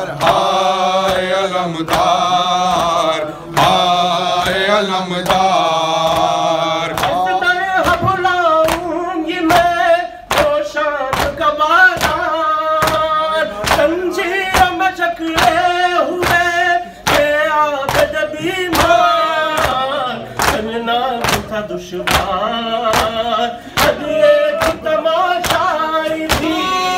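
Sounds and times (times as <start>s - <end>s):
men singing a lament: 0.0s - 26.9s
rhythmic chest-beating thuds: 0.0s - 26.9s.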